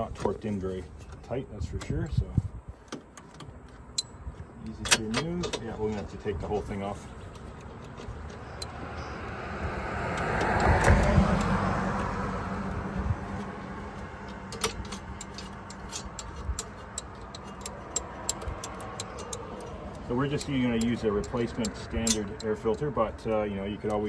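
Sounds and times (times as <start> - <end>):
vehicle passing: 6.8 - 24.0
ratchet clicking: 14.2 - 24.0.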